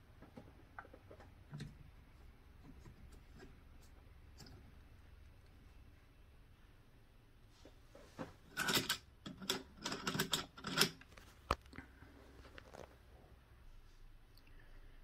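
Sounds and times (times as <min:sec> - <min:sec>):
metal accessories clicking and knocking: 0:08.5 - 0:11.2.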